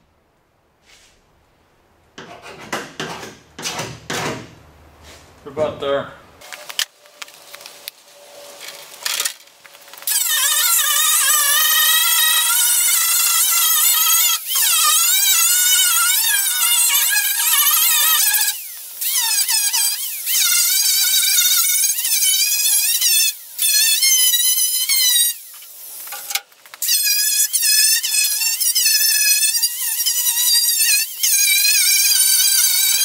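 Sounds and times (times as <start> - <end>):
grinder cutting sheet metal: 10.0 - 33.0.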